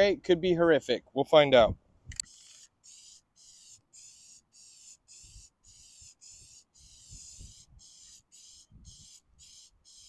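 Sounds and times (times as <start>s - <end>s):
spray paint can hissing: 2.2s - 10.0s.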